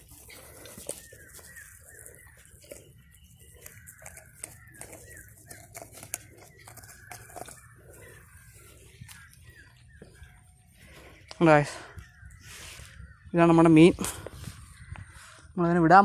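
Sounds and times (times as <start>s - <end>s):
dry straw crackling and rustling: 0.0s - 11.0s
bird chirping: 0.0s - 16.0s.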